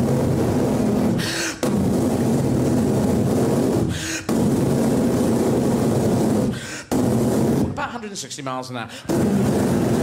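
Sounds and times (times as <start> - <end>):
man breathing quickly: 1.0 - 2.1, 3.6 - 4.6, 6.4 - 7.1, 8.9 - 9.2.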